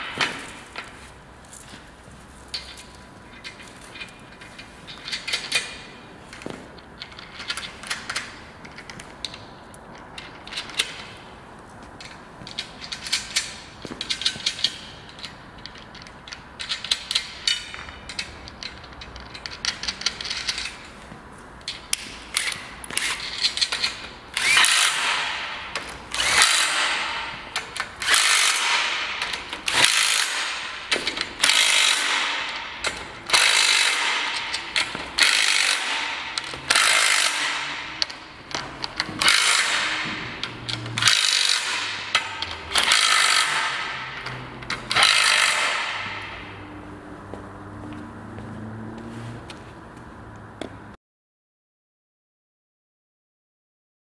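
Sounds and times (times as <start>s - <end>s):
metal clicks and clatter: 2.5s - 11.2s, 12.0s - 20.9s, 21.6s - 46.5s.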